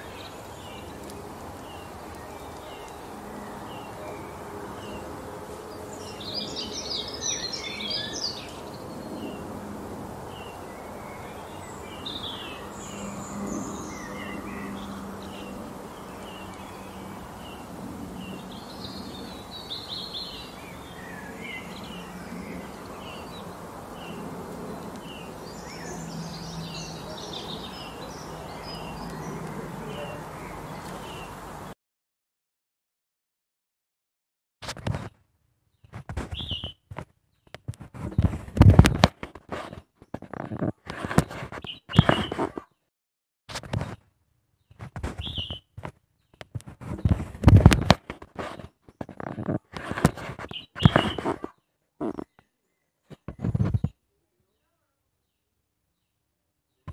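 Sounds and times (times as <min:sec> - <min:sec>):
songbird song phrases: 0:00.0 - 0:31.7, 0:35.7 - 0:37.6, 0:41.3 - 0:42.8, 0:44.5 - 0:47.9, 0:49.1 - 0:56.9
songbirds chirping: 0:00.0 - 0:31.7, 0:34.8 - 0:42.8, 0:43.7 - 0:56.9
steady background noise: 0:00.0 - 0:31.7.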